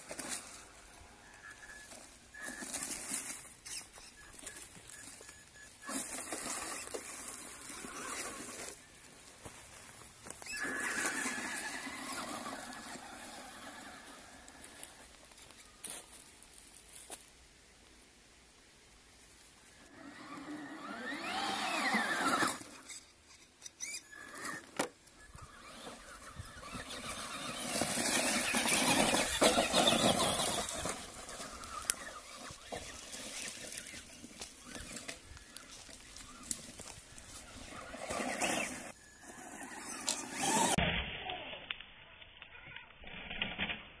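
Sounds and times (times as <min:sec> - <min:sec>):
tyres scrabbling over gravel: 0:00.0 - 0:17.2, 0:23.8 - 0:40.8
electric motor whining: 0:19.9 - 0:23.0, 0:23.8 - 0:40.8.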